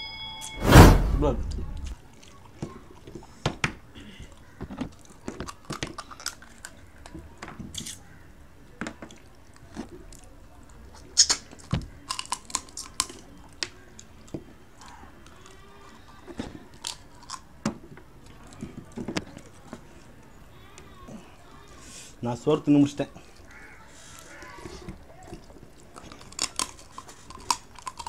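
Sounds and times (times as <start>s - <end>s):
people chewing crab: 2.0s - 22.2s, 23.1s - 28.0s
crab shell cracking: 11.3s - 14.1s, 26.0s - 28.0s.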